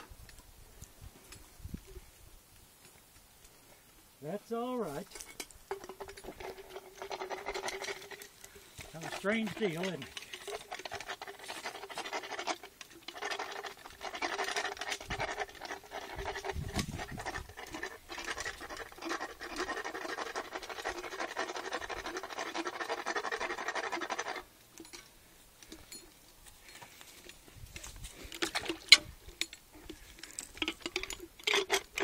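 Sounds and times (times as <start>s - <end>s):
metal file rasping on teeth: 5.9s - 24.5s.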